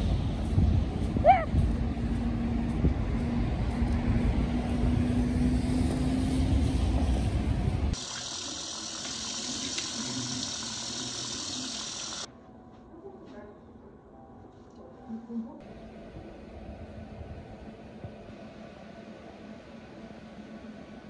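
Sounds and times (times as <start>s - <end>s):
tap water splashing into sink: 8.0s - 12.2s.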